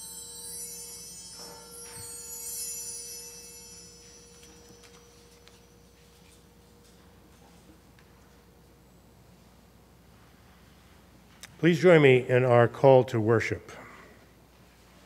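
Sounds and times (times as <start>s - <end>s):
bell ringing: 0.0s - 6.6s
paper rustling: 4.4s - 6.4s.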